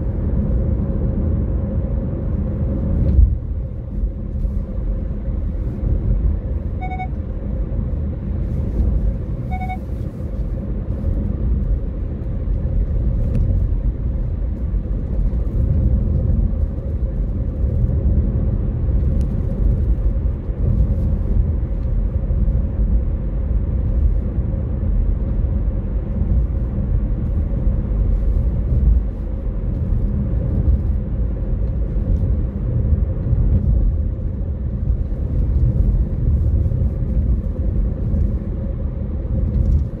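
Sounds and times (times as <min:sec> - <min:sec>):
car road and engine rumble: 0:00.0 - 0:40.0
short electronic beeps: 0:06.8 - 0:07.2, 0:09.4 - 0:09.9.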